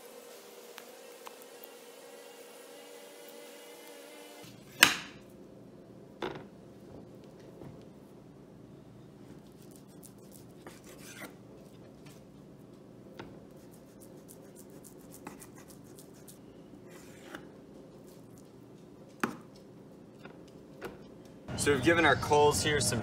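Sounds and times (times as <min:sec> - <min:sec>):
faint steady hum: 0:00.0 - 0:23.0
knife slicing raw meat: 0:09.6 - 0:11.4.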